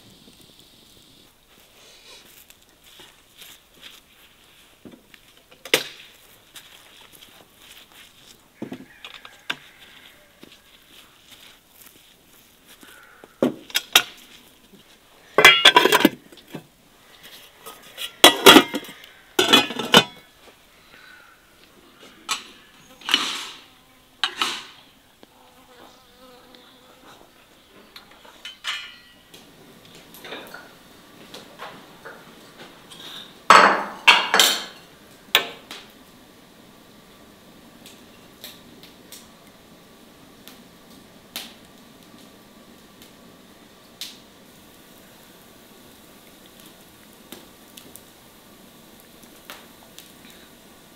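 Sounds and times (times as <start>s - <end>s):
pots and utensils clattering: 13.4s - 14.2s, 15.4s - 16.6s, 17.6s - 20.3s, 22.2s - 23.6s, 24.2s - 24.8s, 28.3s - 29.3s, 30.2s - 30.8s, 32.9s - 35.6s.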